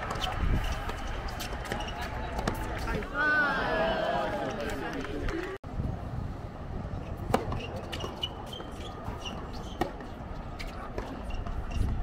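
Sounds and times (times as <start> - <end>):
low crowd murmur: 0.0 - 5.6
sneakers squeaking on court: 0.1 - 2.4, 7.1 - 11.9.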